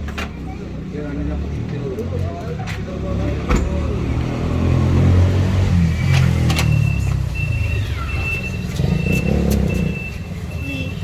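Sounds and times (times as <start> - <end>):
vehicle engine rumbling: 0.0 - 11.0
high electronic beep: 5.8 - 11.0.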